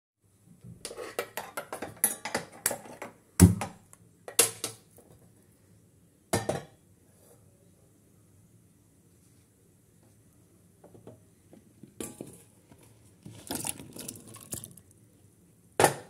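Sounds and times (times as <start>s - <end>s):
steel cookware clattering: 0.9s - 3.1s.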